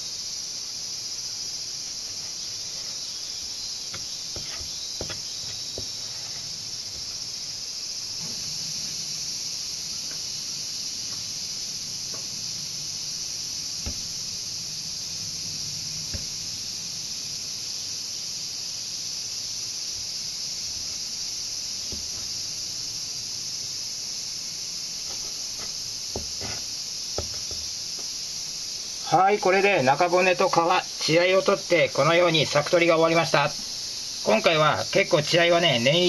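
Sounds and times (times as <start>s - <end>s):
insect chorus: 0.0s - 36.0s
knife knocking on cutting board: 3.9s - 6.0s, 13.8s - 14.1s, 16.1s - 16.4s, 21.9s - 22.3s, 25.6s - 26.6s, 27.2s - 27.7s.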